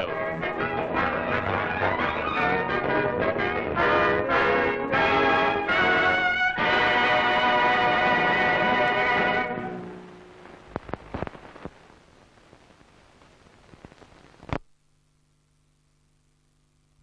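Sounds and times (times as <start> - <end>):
orchestral music: 0.0 - 10.2
film soundtrack hiss with crackles: 0.0 - 17.0
faint low hum: 9.5 - 17.0.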